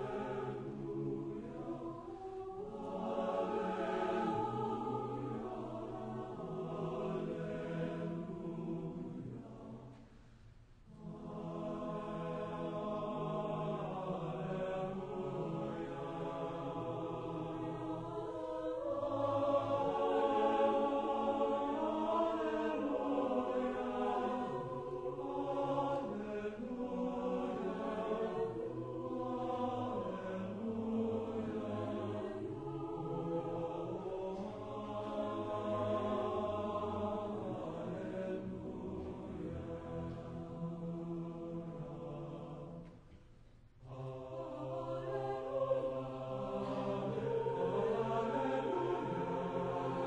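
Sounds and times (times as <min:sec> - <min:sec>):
choir singing sustained chords: 0:00.0 - 0:50.0.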